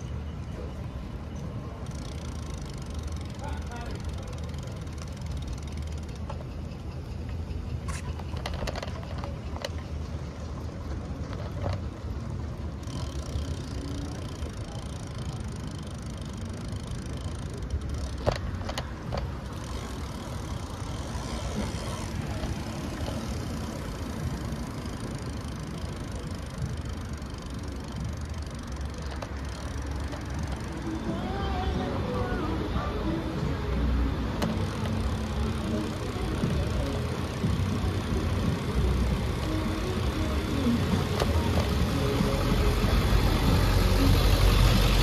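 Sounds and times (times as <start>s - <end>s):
street rumble: 0.0s - 45.0s.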